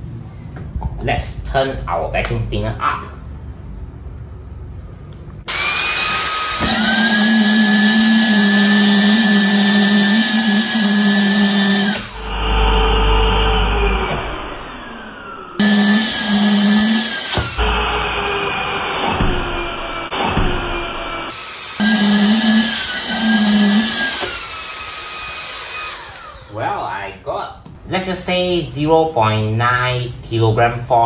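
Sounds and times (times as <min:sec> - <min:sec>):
vacuum cleaner motor whine: 0:05.5 - 0:20.1, 0:21.3 - 0:26.6.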